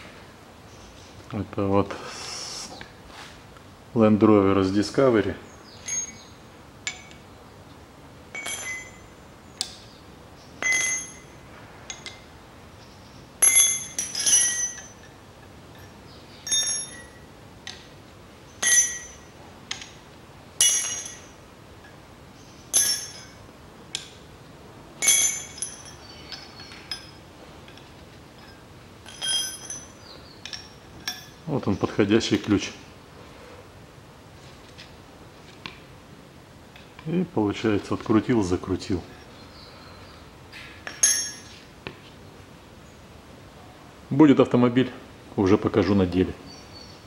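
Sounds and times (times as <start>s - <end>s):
steel wrenches clinking: 5.8s - 7.2s, 8.3s - 9.8s, 10.6s - 12.3s, 13.4s - 17.9s, 18.6s - 20.0s, 20.6s - 22.0s, 22.7s - 24.2s, 25.0s - 32.5s, 40.8s - 41.7s.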